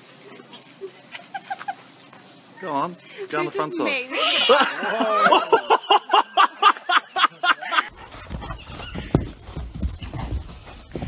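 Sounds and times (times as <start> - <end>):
woman laughing and squealing: 1.1 - 1.9, 4.1 - 7.9.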